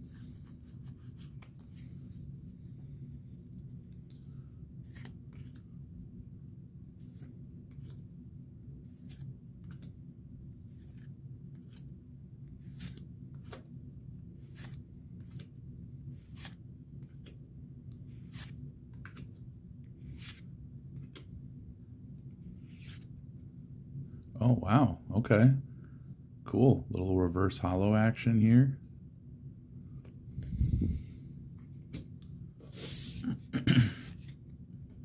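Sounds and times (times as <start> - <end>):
steady low hum: 0.0 - 35.0
cards sliding off a stack: 4.8 - 5.6, 8.9 - 9.9, 12.6 - 13.7, 14.4 - 15.5, 16.2 - 17.4, 18.0 - 19.3, 20.0 - 20.4.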